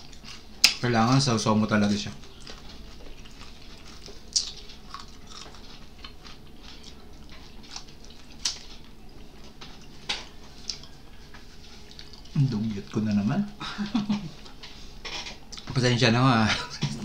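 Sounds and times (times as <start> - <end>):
chewing and crunching fried fish: 0.0 - 1.3, 1.9 - 13.2
steady low hum: 0.0 - 17.0.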